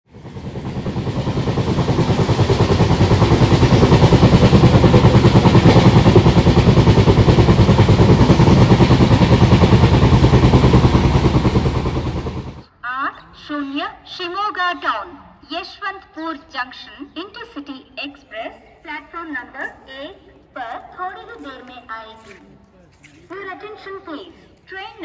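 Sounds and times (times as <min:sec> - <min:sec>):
diesel locomotive engine throbbing: 0:00.1 - 0:12.7.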